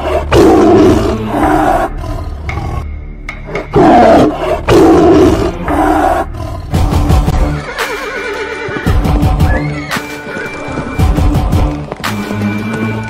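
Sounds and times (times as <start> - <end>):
tiger roaring: 0.0 - 2.8, 3.6 - 7.0.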